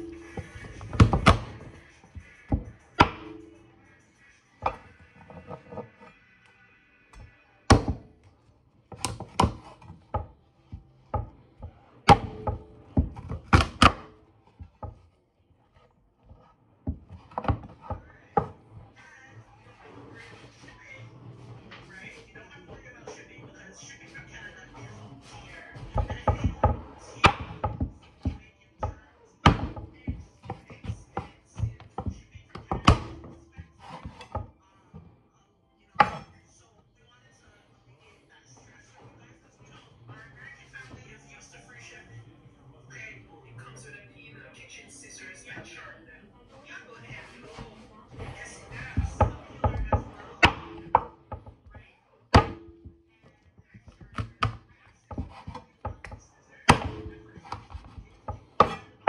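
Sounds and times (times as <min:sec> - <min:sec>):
knife chopping on wooden board: 0:00.0 - 0:01.8, 0:02.5 - 0:03.4, 0:07.7 - 0:08.1, 0:12.1 - 0:15.0, 0:25.8 - 0:34.5, 0:36.0 - 0:36.3, 0:48.2 - 0:51.6, 0:52.3 - 0:52.9, 0:53.8 - 0:59.0.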